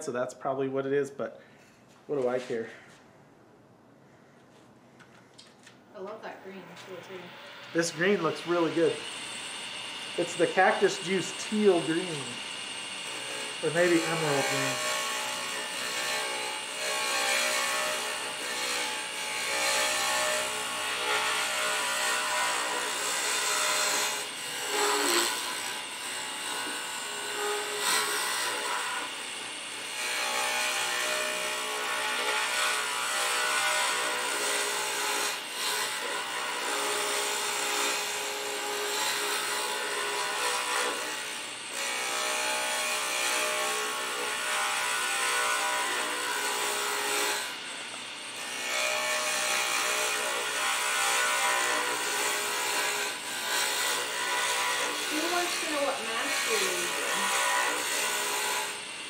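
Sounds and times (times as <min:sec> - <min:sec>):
turning tool scraping wood: 0:06.8 - 0:29.4, 0:41.8 - 0:58.9
lathe motor hum: 0:06.8 - 0:35.2.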